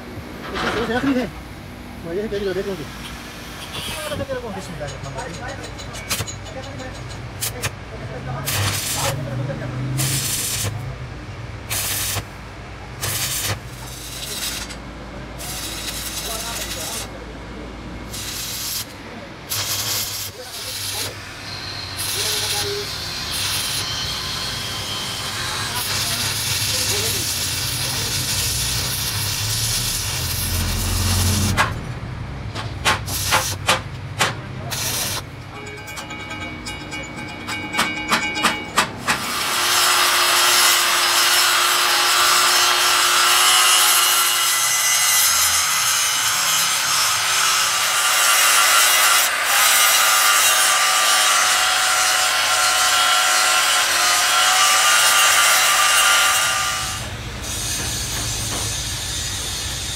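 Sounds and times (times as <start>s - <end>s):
welding arc crackling and hissing: 8.4s - 9.3s, 10.0s - 10.9s, 11.7s - 12.4s, 13.0s - 14.8s, 15.4s - 17.2s, 18.1s - 21.2s, 22.0s - 24.6s, 25.8s - 31.8s, 32.8s - 33.8s, 34.7s - 35.3s
sharp knocks: 32.5s - 34.5s, 36.0s - 39.3s
angle grinder whining: 39.1s - 59.9s.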